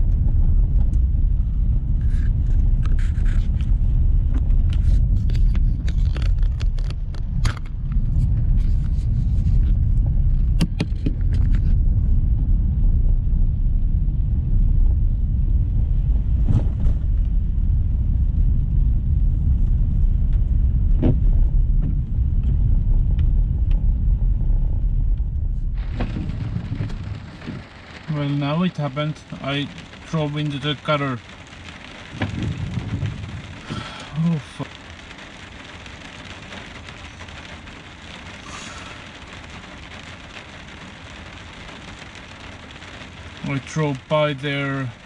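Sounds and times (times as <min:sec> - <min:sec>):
car engine and road noise: 0:00.0 - 0:45.0
sharp clicks and knocks: 0:04.3 - 0:08.0, 0:10.4 - 0:11.7.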